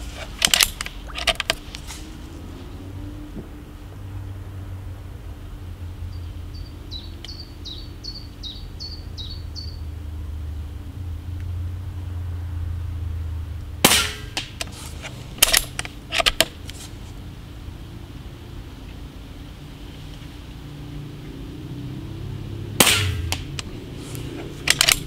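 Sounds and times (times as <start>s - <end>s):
loud clicks and knocks: 0.0s - 1.6s, 15.4s - 16.6s, 24.6s - 25.0s
steady low hum: 0.0s - 25.0s
bird chirping: 6.0s - 10.8s
air rifle shot: 13.8s - 14.7s, 22.8s - 23.6s.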